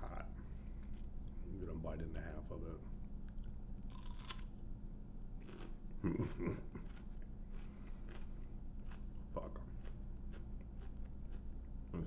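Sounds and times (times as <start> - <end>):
pepper crunching when bitten: 3.3 - 4.5
chewing: 5.4 - 11.5
person murmuring: 6.0 - 6.8.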